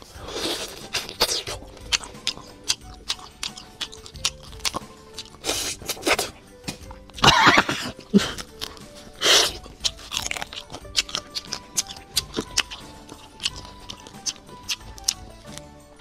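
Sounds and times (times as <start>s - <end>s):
chewing: 0.0s - 16.0s
quiet background music: 0.0s - 16.0s
crayfish shells cracking: 0.7s - 5.4s, 8.3s - 15.7s
loud slurps: 5.3s - 6.4s, 9.2s - 9.6s.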